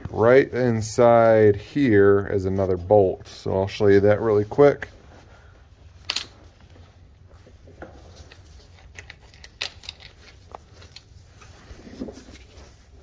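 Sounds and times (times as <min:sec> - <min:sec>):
metallic clinks and rattles: 0:08.2 - 0:11.2.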